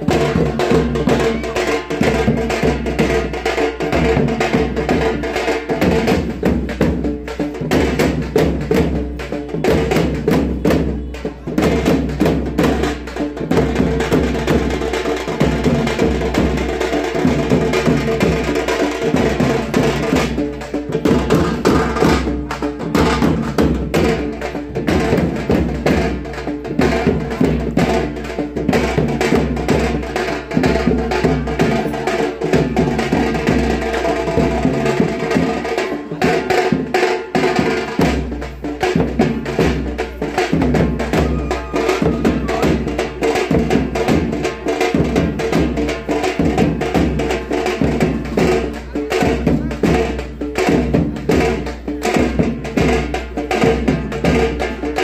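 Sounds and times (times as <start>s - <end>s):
music with fast drum strokes: 0.0s - 55.0s.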